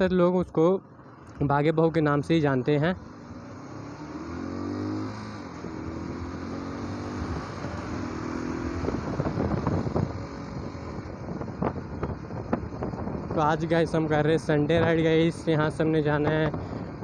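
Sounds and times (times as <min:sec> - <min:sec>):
motorcycle engine running: 0:00.8 - 0:17.0
wind buffeting noise: 0:04.2 - 0:17.0.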